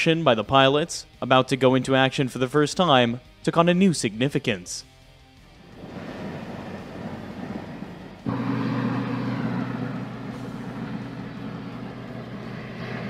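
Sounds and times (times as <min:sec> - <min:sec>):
engine noise rushing: 0:05.6 - 0:13.0.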